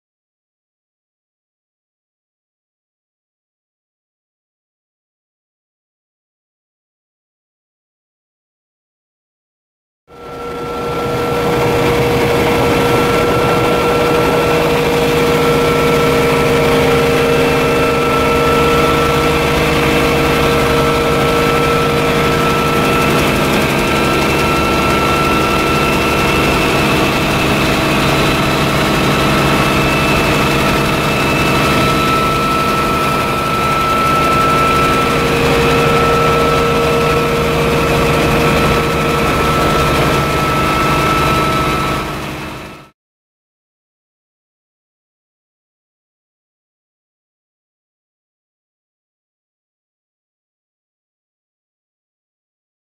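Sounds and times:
helicopter engine and rotor: 10.1 - 43.0.

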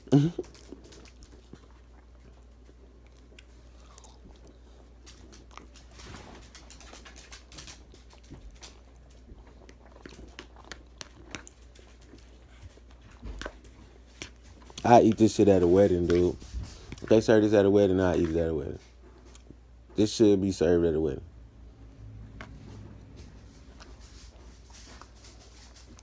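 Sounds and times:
person chewing: 0.0 - 17.3.

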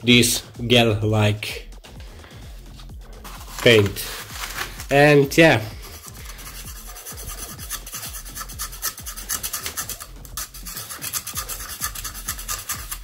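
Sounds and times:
screwdriver scraping paint coating: 5.6 - 13.0.

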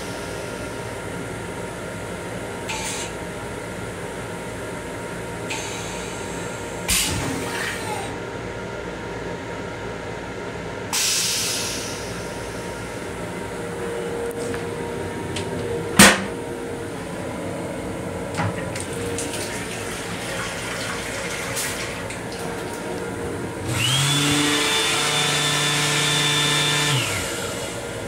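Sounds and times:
faucet running into sink: 18.8 - 22.7
electric motor whine: 23.6 - 28.0.

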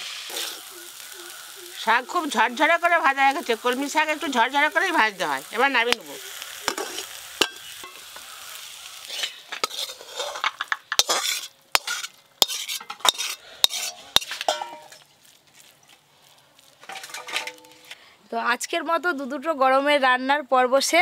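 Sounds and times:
metal spatula scraping a pan: 0.0 - 1.1, 5.9 - 15.1, 16.8 - 18.0
greens sizzling in a pan: 0.0 - 19.4.

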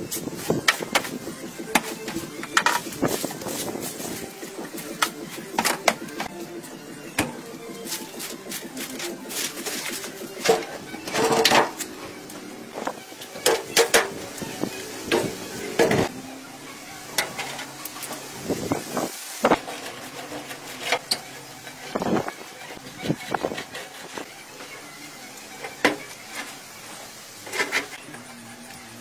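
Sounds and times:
broom scraping debris: 0.0 - 6.3, 7.8 - 12.0, 25.6 - 28.0.

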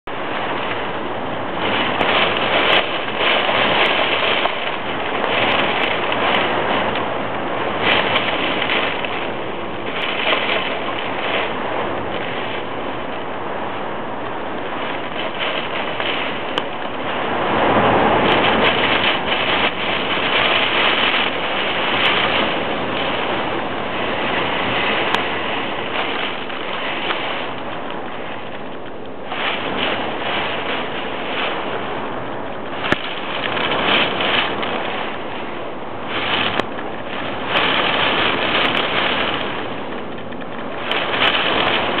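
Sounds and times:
strong wind rushing: 0.0 - 42.0.

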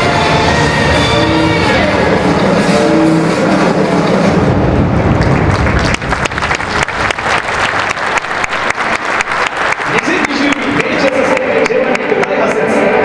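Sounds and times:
stadium music: 0.0 - 13.0
crowd clapping: 5.0 - 13.0.

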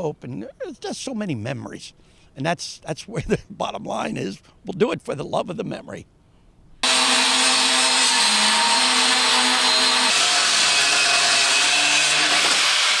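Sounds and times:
angle grinder grinding metal: 6.8 - 13.0.

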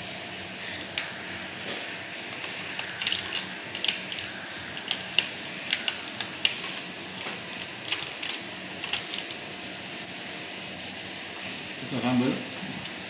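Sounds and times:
crackles and wet smacks of eating: 0.9 - 9.4.

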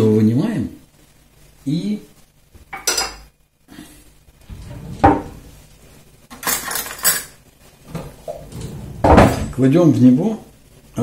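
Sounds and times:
crockery and cutlery clattering: 2.7 - 3.3, 4.5 - 5.4, 6.3 - 9.6.

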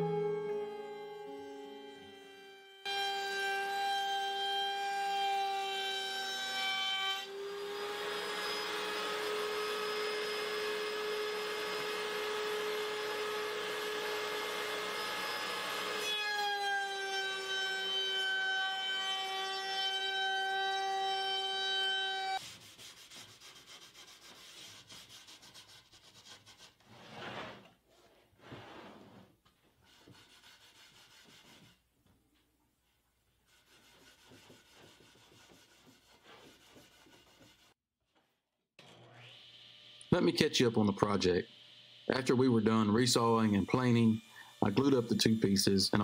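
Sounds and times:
board rubbing and sliding: 26.2 - 29.4.

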